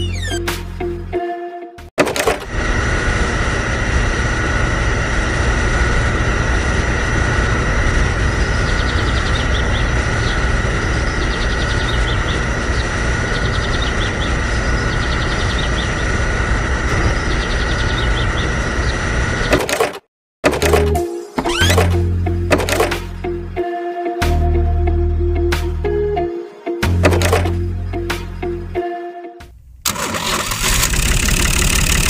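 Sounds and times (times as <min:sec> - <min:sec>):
small pump motor humming: 0:02.0 - 0:19.9.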